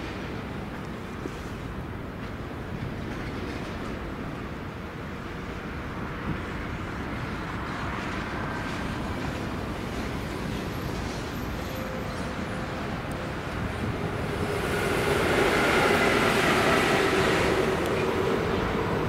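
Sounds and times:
locomotive wheels on rails: 0.0 - 19.0
locomotive whine: 9.6 - 19.0.

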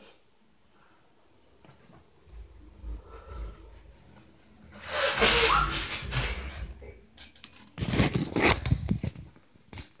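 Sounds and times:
phone rubbing on microphone: 2.3 - 7.0
rush: 2.3 - 7.1.

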